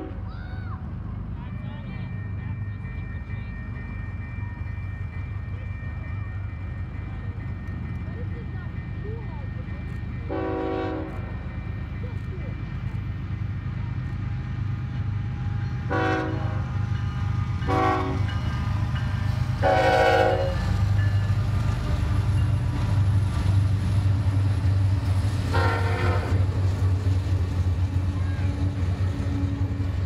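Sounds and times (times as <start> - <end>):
locomotive air horn blasts: 0.0 - 0.2, 10.3 - 11.3, 15.9 - 16.7, 17.6 - 18.3, 19.6 - 20.6, 25.5 - 26.4
diesel locomotive engines droning: 0.0 - 30.0.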